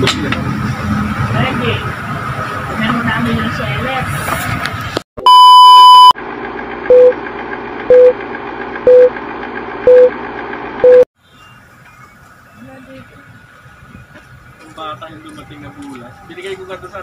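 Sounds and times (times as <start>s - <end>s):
long loud beep: 5.2s - 6.2s, 6.9s - 7.2s, 7.9s - 8.2s, 8.9s - 9.1s, 9.9s - 10.1s, 10.8s - 11.1s
short beeps: 5.2s - 6.2s, 6.9s - 7.2s, 7.9s - 8.2s, 8.9s - 9.1s, 9.9s - 10.1s, 10.8s - 11.1s.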